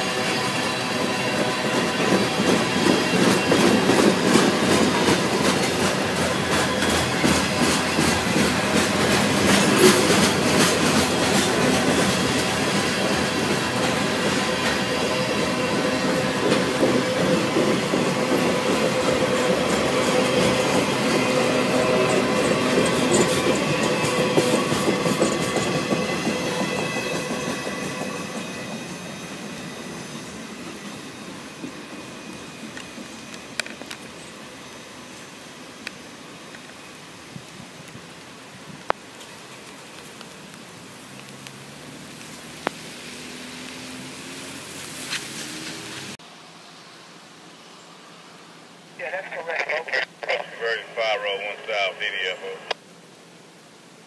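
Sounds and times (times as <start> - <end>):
train wheels clattering over rail joints: 1.4 - 21.3.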